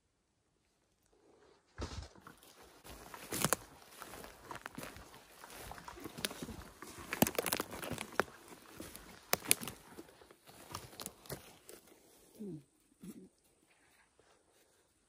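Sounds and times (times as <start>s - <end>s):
footsteps crunching dry leaves: 1.8s - 12.1s.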